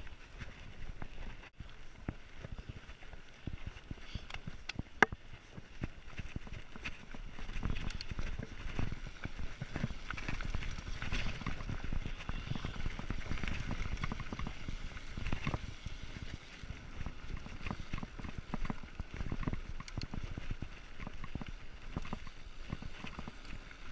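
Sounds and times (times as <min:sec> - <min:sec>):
bike tyres on gravel: 0:00.0 - 0:23.9
bike rattling over bumps: 0:00.1 - 0:23.9.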